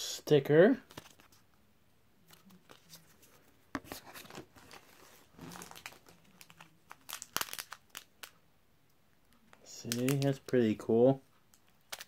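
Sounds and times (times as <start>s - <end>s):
card pack wrapper crinkling: 3.8s - 8.4s, 9.5s - 10.8s, 11.5s - 12.0s.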